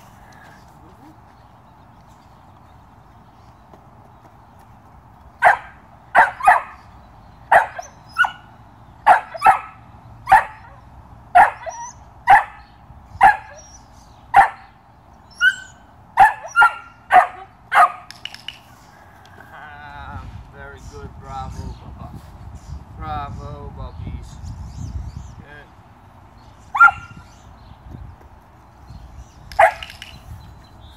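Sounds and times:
puppy barking: 0:05.4 - 0:06.8, 0:07.5 - 0:08.5, 0:09.1 - 0:10.8, 0:11.4 - 0:12.6, 0:13.2 - 0:13.8, 0:14.4 - 0:14.7, 0:15.4 - 0:18.1, 0:26.8 - 0:27.2, 0:29.6 - 0:29.9.

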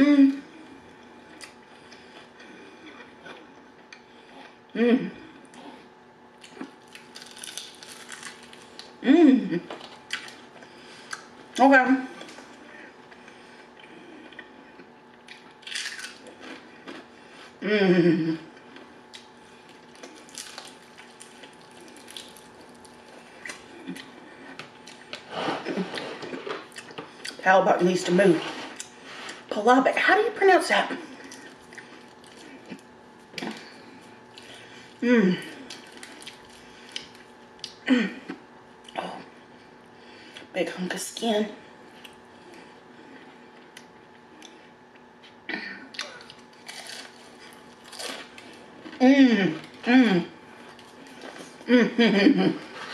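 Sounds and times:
chewing crispy fried chicken: 0:00.6 - 0:09.0, 0:09.7 - 0:11.4, 0:12.2 - 0:17.5, 0:18.5 - 0:27.4, 0:31.0 - 0:39.0, 0:41.9 - 0:49.0
crunchy breading crackles: 0:06.4 - 0:09.0, 0:15.2 - 0:16.5, 0:19.2 - 0:23.7, 0:46.0 - 0:48.6.

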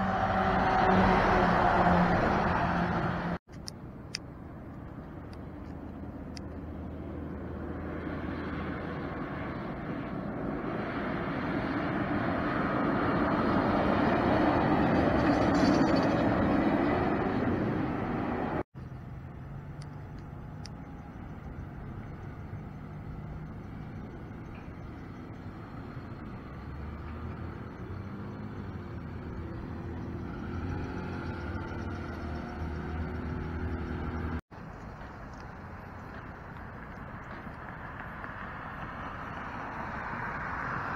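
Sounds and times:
diesel engine: 0:00.0 - 0:40.9
semi truck passing: 0:00.0 - 0:40.9.

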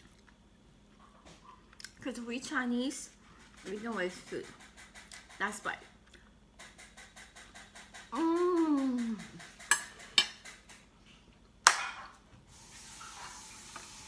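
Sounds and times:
woman humming: 0:08.1 - 0:09.4.

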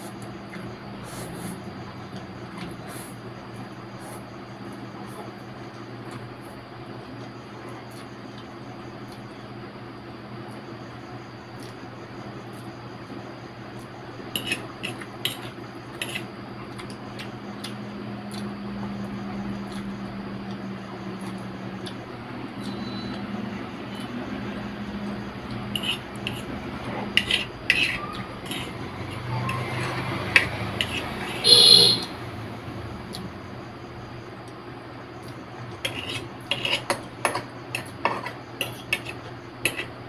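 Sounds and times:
fork clinking and scraping on plate: 0:25.7 - 0:26.5, 0:27.1 - 0:28.7, 0:30.4 - 0:31.4, 0:35.8 - 0:39.9.

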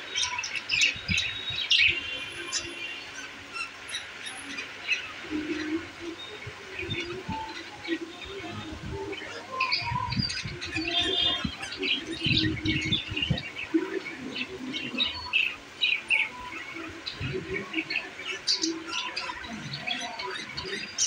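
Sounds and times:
budgerigars chattering: 0:09.2 - 0:21.0.

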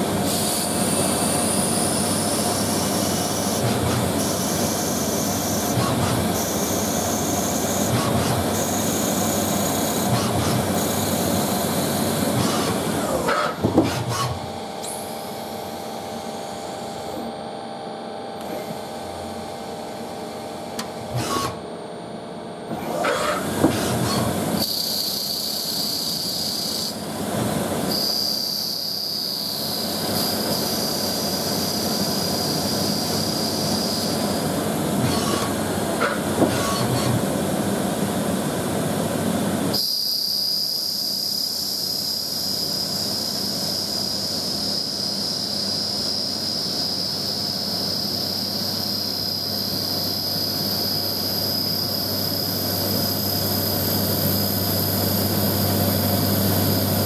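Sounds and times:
lathe mechanical hiss and hum: 0:00.0 - 0:57.0
steady high whine: 0:00.0 - 0:57.0
tool turret clunks: 0:12.4 - 0:14.4.

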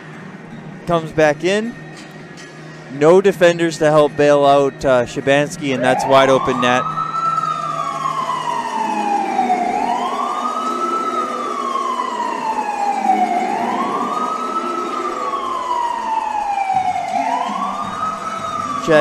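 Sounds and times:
hockey goal siren wailing: 0:05.2 - 0:19.0.

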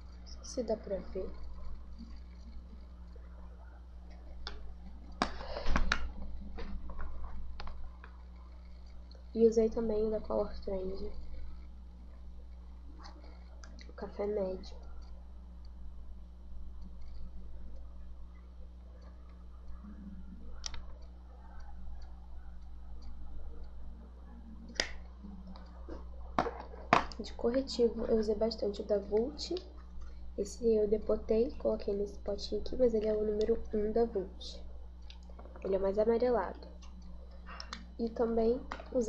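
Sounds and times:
steady hum: 0:00.0 - 0:39.0.

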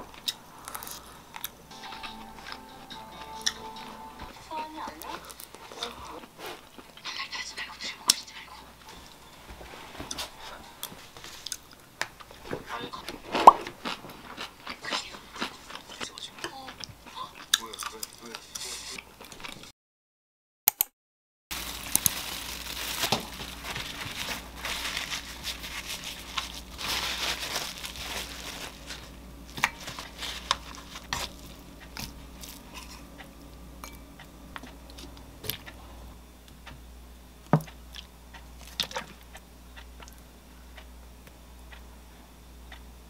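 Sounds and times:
plastic crinkling: 0:21.5 - 0:33.0.

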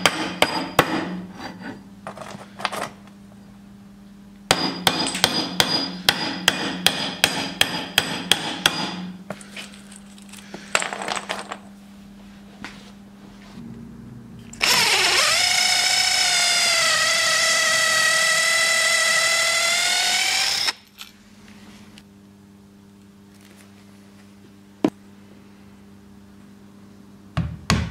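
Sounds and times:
hammer striking wooden peg: 0:04.5 - 0:09.0
cordless drill whining: 0:14.6 - 0:20.8.

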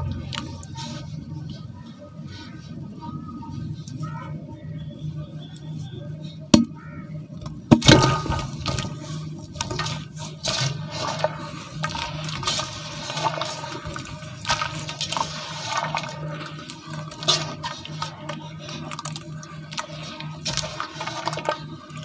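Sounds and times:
water sloshing: 0:07.7 - 0:22.0
wet crumbling and squelching: 0:07.8 - 0:22.0.

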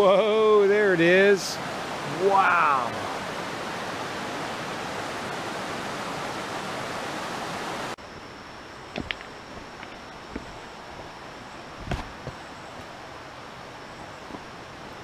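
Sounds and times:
mountain stream rushing: 0:00.0 - 0:08.0, 0:08.9 - 0:15.0
footsteps on rocky trail: 0:08.9 - 0:11.2, 0:11.8 - 0:13.0, 0:14.2 - 0:14.6.

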